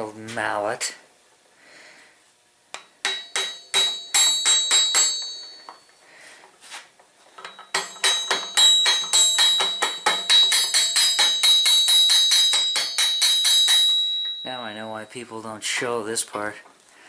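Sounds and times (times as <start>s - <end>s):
mallet tapping on steel: 2.7s - 5.8s, 7.4s - 14.5s.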